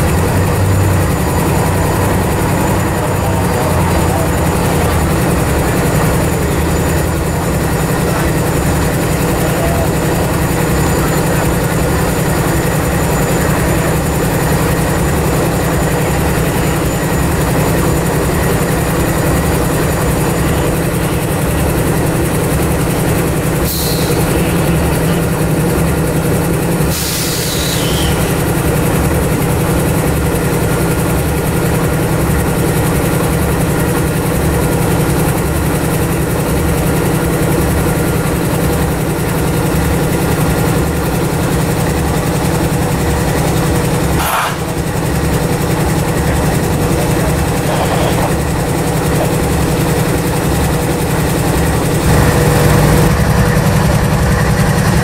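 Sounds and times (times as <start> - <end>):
diesel locomotives idling: 0.0 - 55.0
brief hisses: 23.7 - 24.3, 26.9 - 28.2, 44.2 - 44.7.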